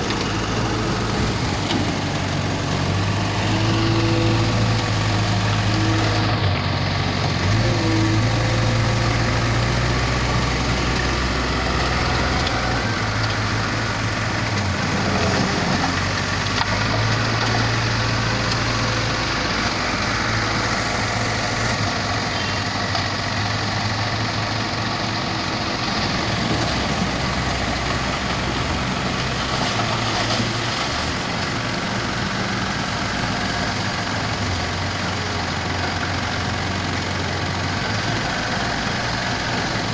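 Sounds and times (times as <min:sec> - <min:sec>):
heavy diesel engines droning: 0:00.0 - 0:39.9.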